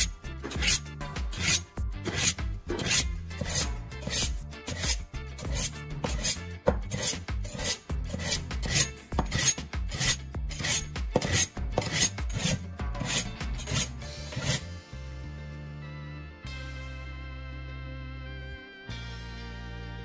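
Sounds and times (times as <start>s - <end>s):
knife scraping on metal files: 0.0s - 14.7s
soft background music: 0.0s - 20.0s.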